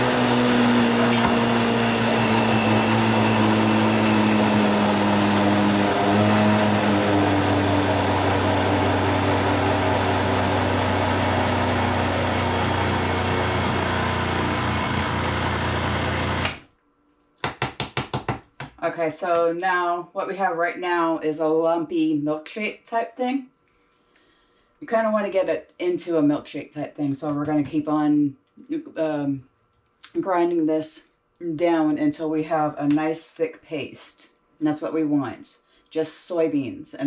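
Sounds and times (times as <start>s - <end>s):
blender motor running: 0.0s - 16.7s.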